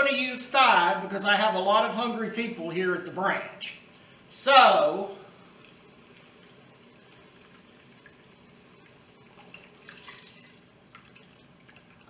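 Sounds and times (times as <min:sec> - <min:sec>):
liquid trickling and splashing: 0:05.4 - 0:12.0.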